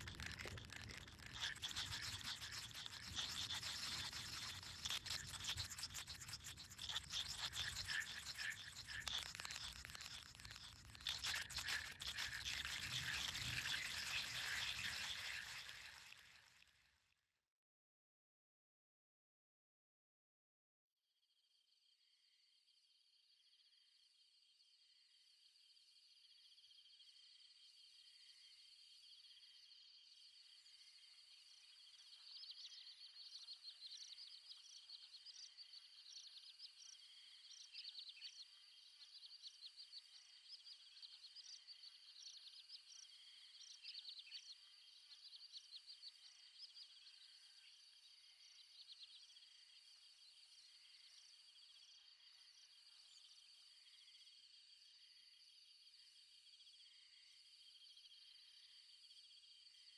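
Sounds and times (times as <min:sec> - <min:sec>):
high steady insect chorus: 0:00.0 - 0:16.0, 0:23.2 - 0:59.9
rapid high chirping: 0:00.0 - 0:16.1.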